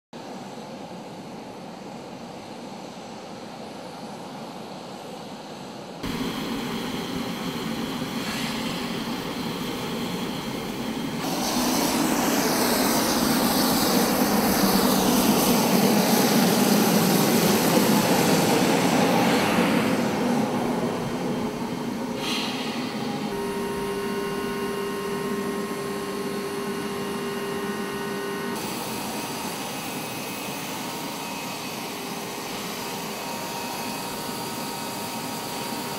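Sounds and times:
falling whine: 6.0 - 32.8
steady hum: 6.0 - 34.3
aircraft engine noise: 6.0 - 35.8.

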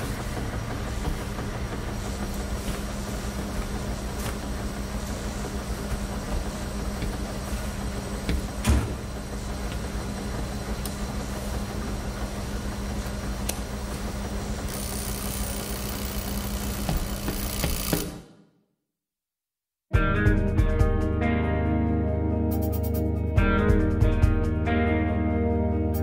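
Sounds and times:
washing machines humming: 0.0 - 18.4.

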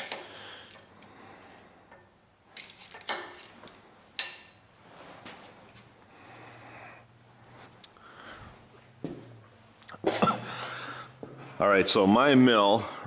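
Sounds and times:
metal tools clinking: 0.0 - 1.7, 2.6 - 4.6.

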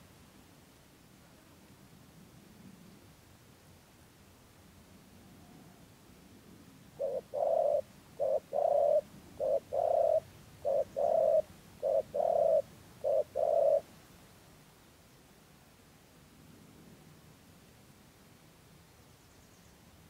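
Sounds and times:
dove cooing: 7.0 - 13.9.

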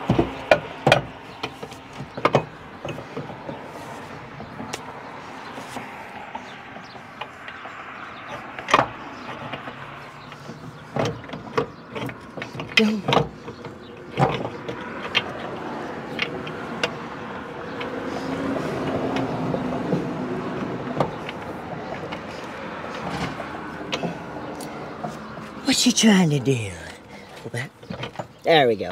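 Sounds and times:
passing vehicle rumble: 0.0 - 27.9
steel parts clanking and knocking: 8.3 - 15.5.

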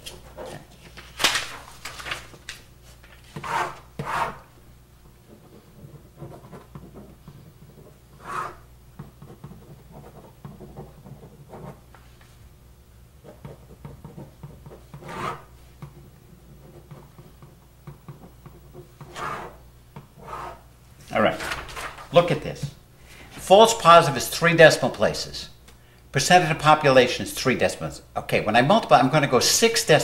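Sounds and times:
marker pen scratching: 3.4 - 4.4, 5.3 - 8.6, 9.2 - 11.8, 13.2 - 17.4, 18.1 - 19.6, 20.2 - 20.6.

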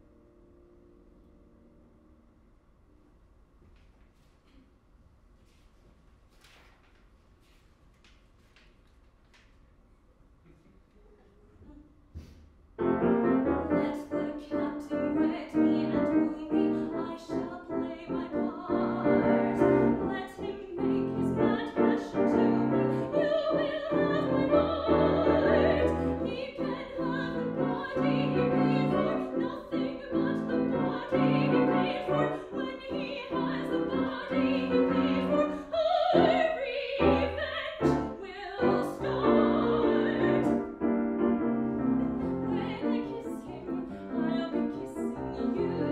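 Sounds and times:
grand piano: 10.0 - 45.9
woman singing with vibrato: 13.6 - 40.7, 41.7 - 45.9.

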